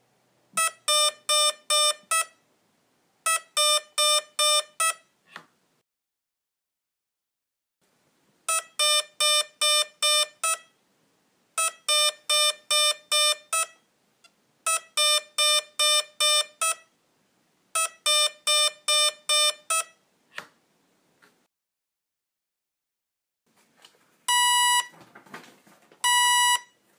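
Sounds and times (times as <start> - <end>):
short electronic beeps: 0.6 - 2.4, 3.3 - 5.1, 8.5 - 10.7, 11.6 - 13.8, 14.7 - 16.9, 17.8 - 20.0, 24.3 - 24.9, 26.0 - 26.8.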